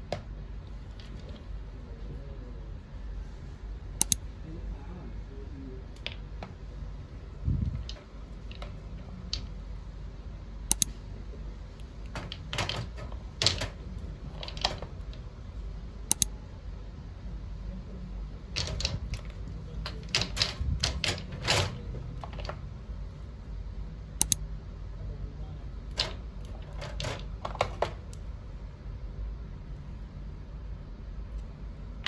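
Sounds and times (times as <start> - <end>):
plastic bottles clicking: 12.0 - 15.2.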